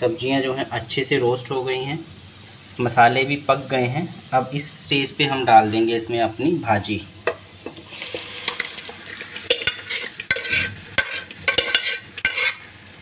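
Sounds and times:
vegetables sizzling in a pan: 0.0 - 13.0
steel ladle scraping a pan: 7.2 - 12.8.

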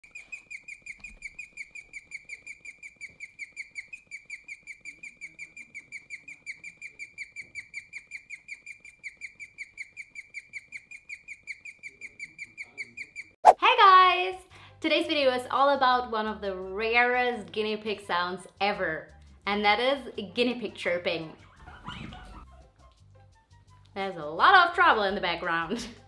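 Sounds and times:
guinea pig chirping: 0.0 - 13.4.

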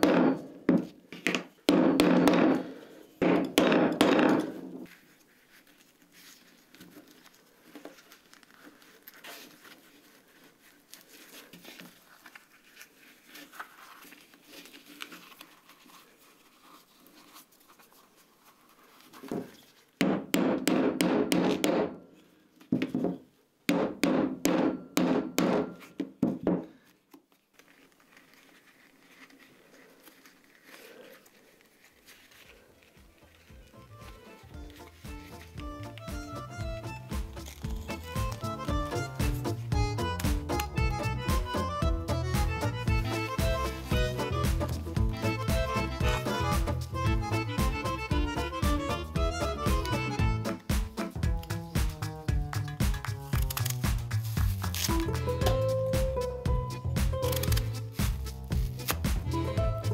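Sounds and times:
faint handling and scratching: 4.8 - 20.0, 26.7 - 59.9
hammer tapping leather punch: 20.0 - 22.0, 23.7 - 26.6.

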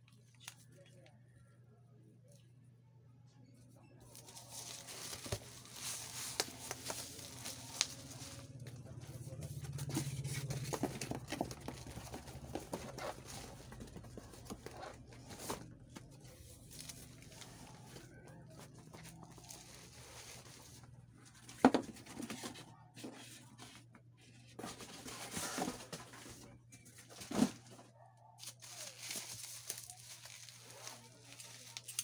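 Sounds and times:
cardboard and plastic wrap rustling: 4.0 - 32.0
cardboard scraping: 9.4 - 16.0.

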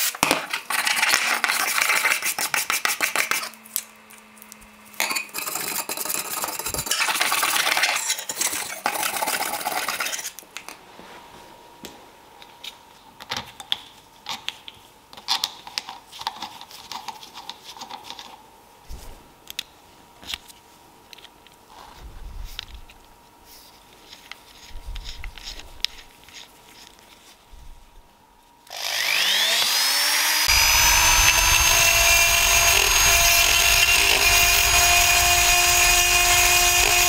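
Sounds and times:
wire brush scrubbing metal: 30.5 - 37.0.

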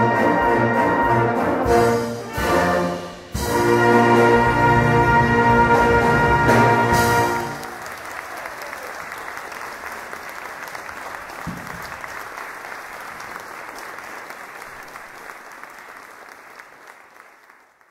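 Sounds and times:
audience applauding: 4.6 - 17.9.

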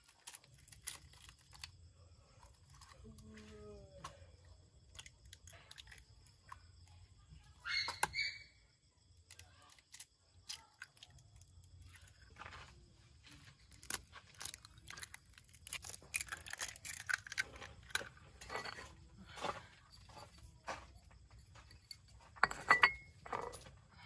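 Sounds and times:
eggshells cracking: 0.0 - 3.0, 4.8 - 6.7, 9.2 - 12.5, 13.2 - 18.3.

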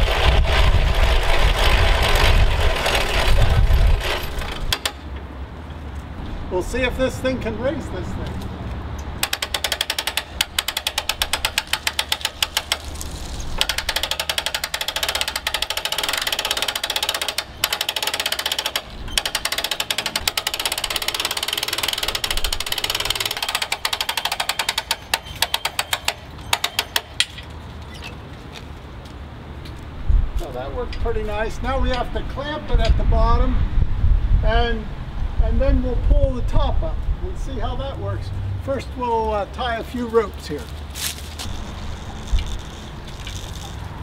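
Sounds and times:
hand-cranked winch clicking: 0.0 - 5.1, 9.2 - 28.2, 41.3 - 44.0.

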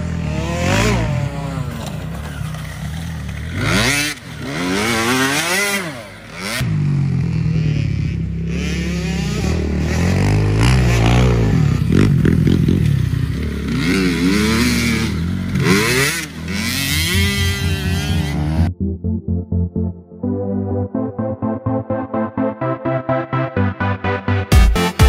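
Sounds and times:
motocross bike engine revving: 0.0 - 18.7.

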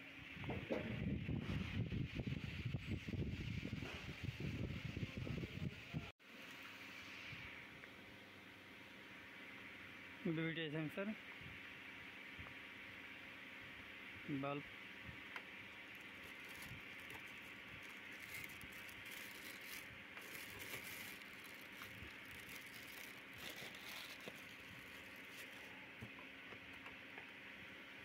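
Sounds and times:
box and plastic bag rustling: 15.8 - 25.8.

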